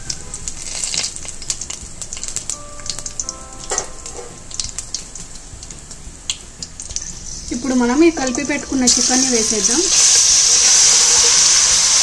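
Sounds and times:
small crackling pops: 0.0s - 3.9s
spices sizzling in hot oil: 0.0s - 12.0s.

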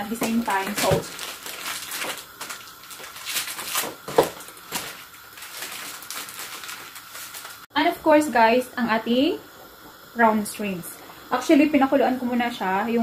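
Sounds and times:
dry spaghetti and packaging handled: 0.0s - 7.7s
water boiling: 0.0s - 13.0s.

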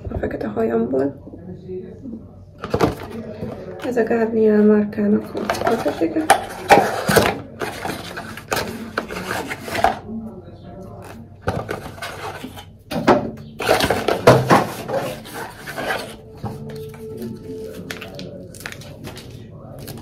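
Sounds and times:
packaging rustling: 5.3s - 10.0s, 13.6s - 20.0s.

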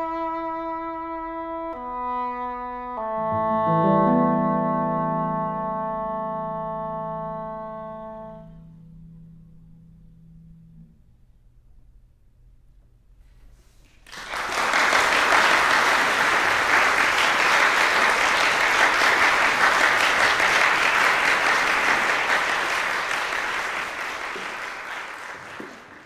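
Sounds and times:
audience applauding: 13.9s - 26.0s.

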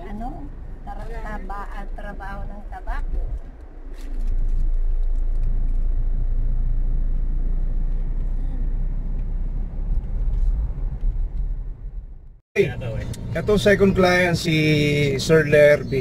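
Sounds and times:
car engine and tyre rumble: 0.0s - 16.0s.

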